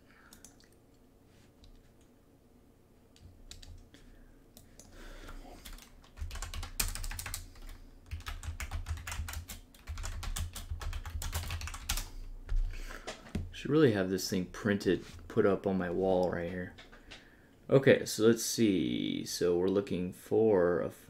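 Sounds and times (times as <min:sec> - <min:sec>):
typing on computer keyboard: 0:03.2 - 0:03.8, 0:05.6 - 0:12.1.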